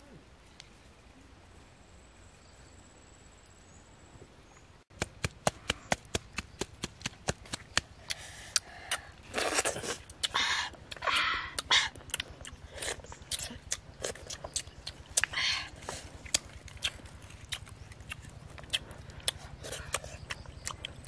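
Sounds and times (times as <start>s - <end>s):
eating clams clicks and crunches: 5.4s - 21.0s.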